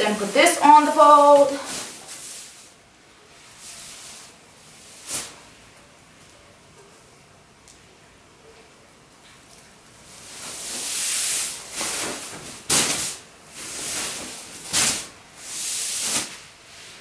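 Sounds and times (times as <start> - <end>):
sequin fabric rustling: 0.0 - 2.8.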